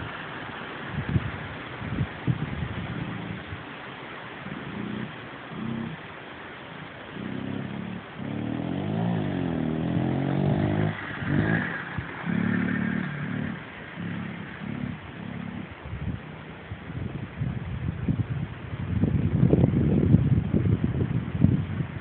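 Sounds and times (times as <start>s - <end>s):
dirt bike engine revving: 4.4s - 6.1s, 6.8s - 16.6s.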